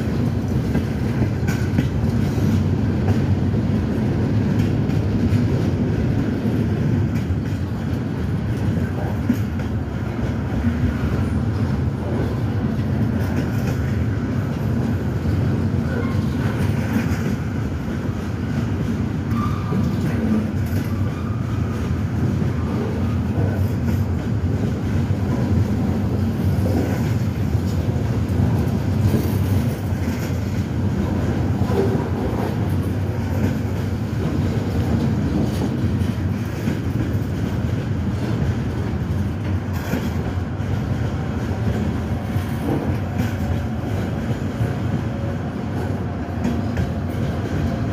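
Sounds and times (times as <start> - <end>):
train wheels rumbling and clattering: 0.0 - 47.9.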